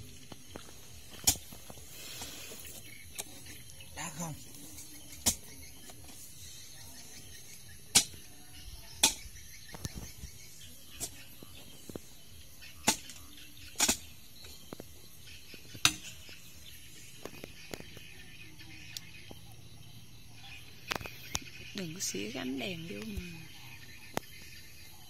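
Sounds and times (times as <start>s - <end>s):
hoe striking stony soil: 0.5s - 2.4s, 4.8s - 6.2s, 7.9s - 8.3s, 9.0s - 10.1s, 12.8s - 14.2s, 15.8s - 16.3s.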